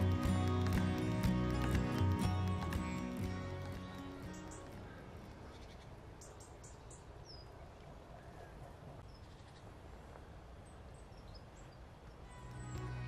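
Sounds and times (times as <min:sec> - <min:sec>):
small bird chirps: 0:09.0 - 0:09.7.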